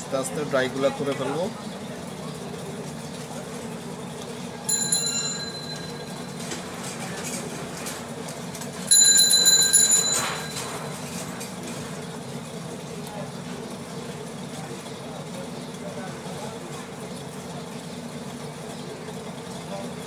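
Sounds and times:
metallic rings: 4.7s - 6.5s, 8.9s - 11.0s.

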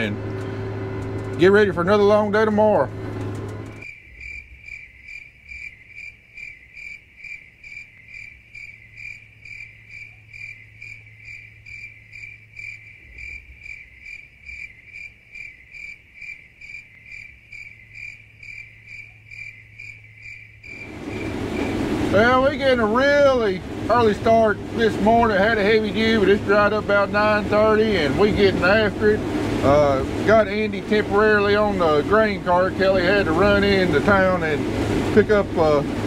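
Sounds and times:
low steady hum: 0.0s - 5.7s, 16.6s - 36.0s
cricket chirping: 3.8s - 21.8s.

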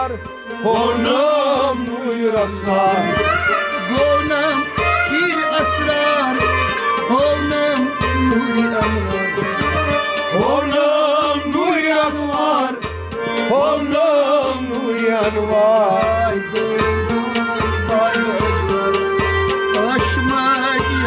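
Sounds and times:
man singing: 0.0s - 21.0s
steady drum beat: 0.0s - 21.0s
sustained instrumental notes: 0.0s - 21.0s.

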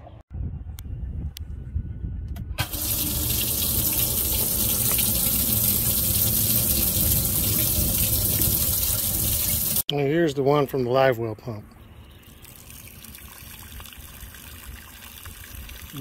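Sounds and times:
water splashing into tank: 2.6s - 9.8s.

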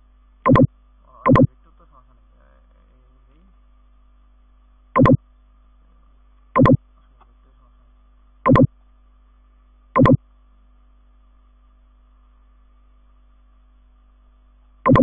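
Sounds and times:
faint electrical hum: 0.0s - 15.0s
computer mouse clicking: 0.5s - 0.7s, 5.0s - 5.2s, 10.0s - 10.2s.

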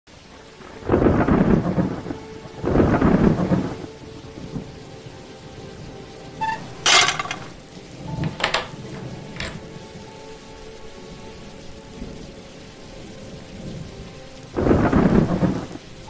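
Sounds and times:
rain hiss: 0.1s - 16.0s
thunder rolling: 0.8s - 3.8s, 14.6s - 15.8s.

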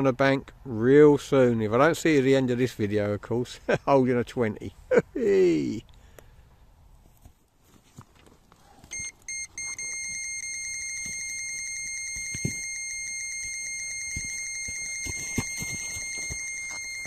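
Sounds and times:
electronic bite alarm beeping: 8.9s - 17.0s.

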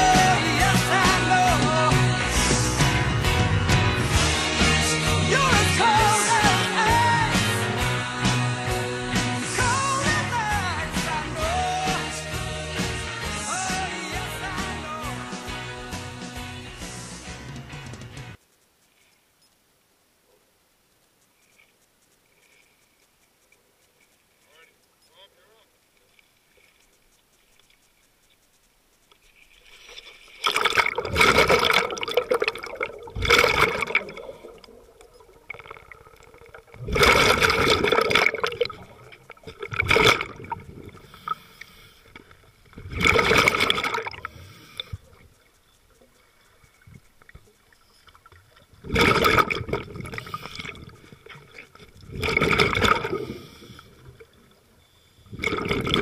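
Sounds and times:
regulator exhaust bubbles underwater: 30.4s - 41.4s, 42.0s - 54.7s, 55.3s - 56.0s.

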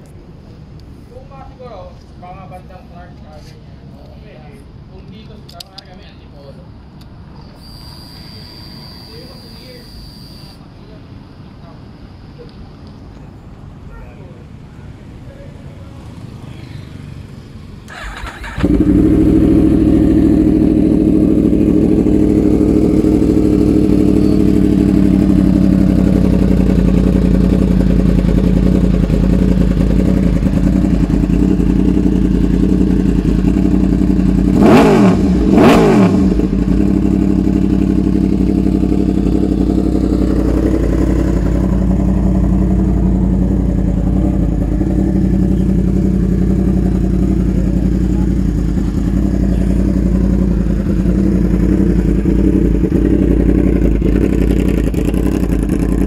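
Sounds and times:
motorcycle engine idling: 7.6s - 10.6s, 17.8s - 56.0s
engine revving: 17.9s - 25.4s, 31.0s - 56.0s.

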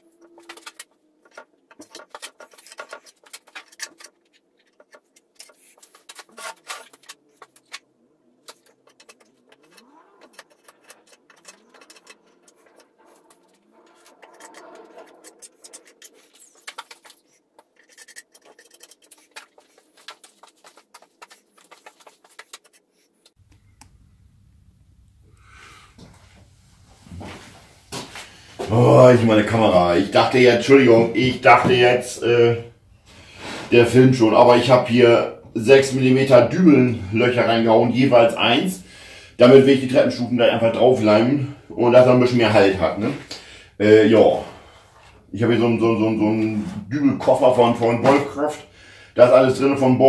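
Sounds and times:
wood and small objects handled: 0.0s - 24.0s
faint low hum: 23.4s - 33.0s.

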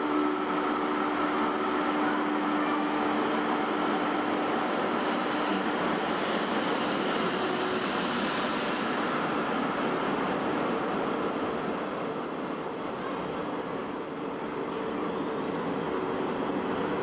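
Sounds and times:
air hiss: 5.0s - 5.6s, 6.2s - 9.0s.

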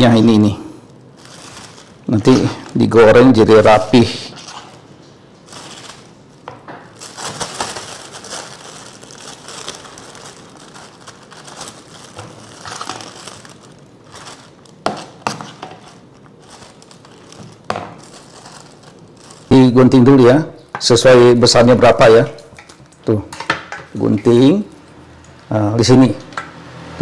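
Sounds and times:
plastic bag crinkling: 0.0s - 20.5s.

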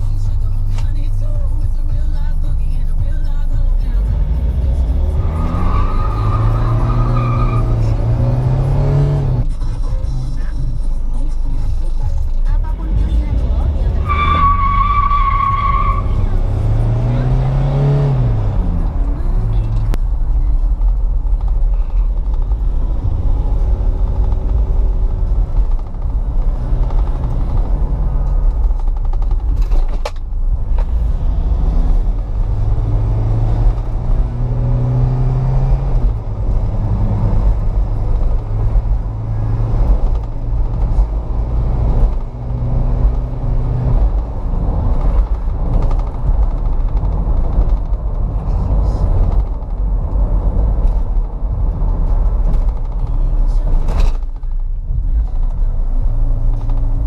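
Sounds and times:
car engine and road noise inside: 0.0s - 57.0s.

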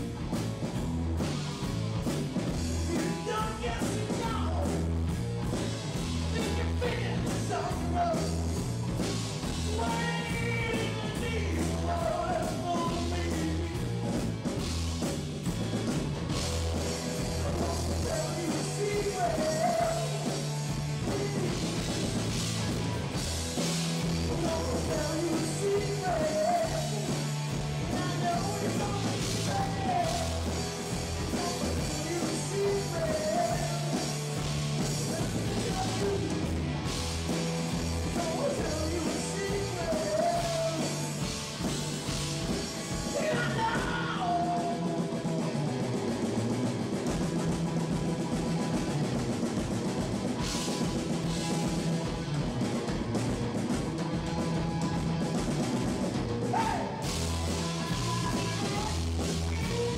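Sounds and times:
drum kit: 0.0s - 59.9s
electric bass: 0.0s - 59.9s
electric guitars: 0.0s - 59.9s
male lead vocal: 2.8s - 4.9s, 6.2s - 8.5s, 9.6s - 14.0s, 17.3s - 22.1s, 24.2s - 36.6s, 38.1s - 41.2s, 43.0s - 45.4s, 56.4s - 59.9s.

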